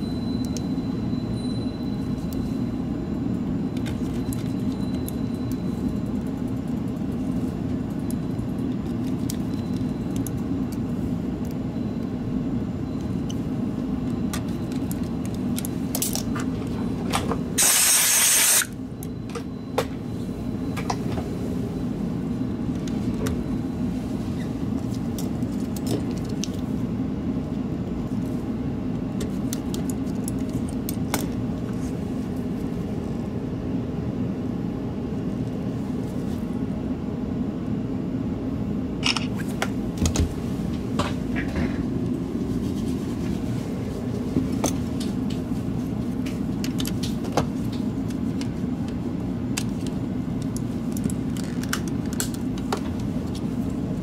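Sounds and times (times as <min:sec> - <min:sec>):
low machinery hum: 0:00.0 - 0:54.0
loud hiss: 0:17.6 - 0:18.7.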